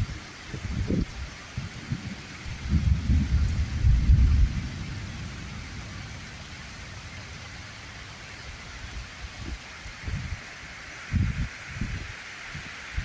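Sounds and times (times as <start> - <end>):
heavy rain on pavement: 0.0 - 13.0
loud low rumble: 2.6 - 7.9.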